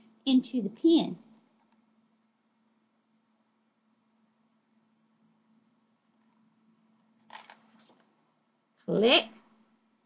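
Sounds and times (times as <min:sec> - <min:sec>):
faint low hum: 0:00.0 - 0:10.0
woman's voice: 0:00.3 - 0:01.3, 0:08.8 - 0:09.4.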